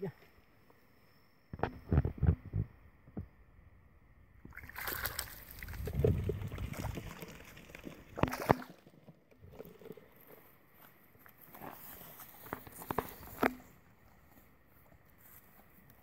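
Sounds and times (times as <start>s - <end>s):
splashing in muddy water: 4.5s - 10.1s.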